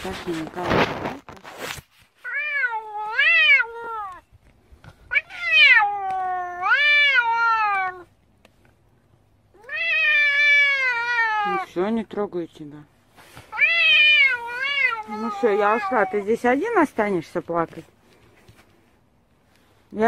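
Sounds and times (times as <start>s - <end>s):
cat meowing: 2.2s - 4.3s, 5.1s - 8.1s, 9.5s - 11.8s, 13.5s - 16.5s.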